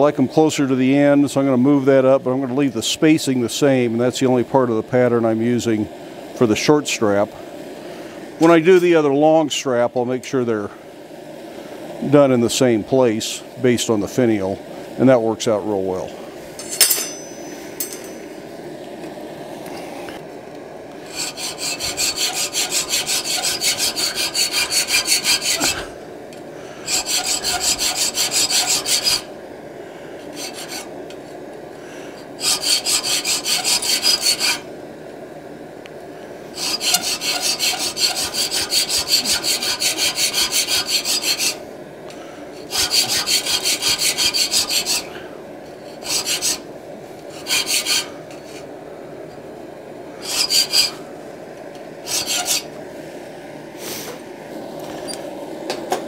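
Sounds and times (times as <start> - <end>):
sharp metallic clink: 16.6 - 18.3
file rasping on steel: 21.1 - 25.9, 26.8 - 29.3, 30.3 - 30.9, 32.4 - 34.6, 36.6 - 41.6, 42.6 - 45.1, 45.9 - 46.6, 47.3 - 48.6, 50.2 - 51.0, 52.1 - 52.7.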